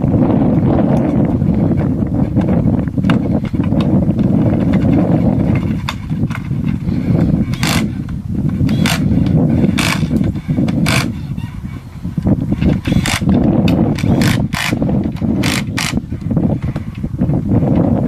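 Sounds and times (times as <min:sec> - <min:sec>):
wind rumble on microphone: 0:00.0 - 0:18.0
tool clicks: 0:07.5 - 0:07.9, 0:08.7 - 0:11.1, 0:12.7 - 0:16.0.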